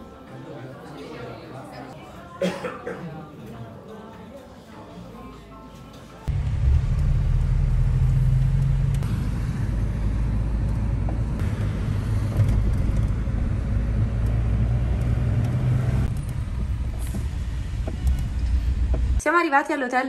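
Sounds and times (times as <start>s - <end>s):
car road and engine rumble: 6.3s - 19.2s.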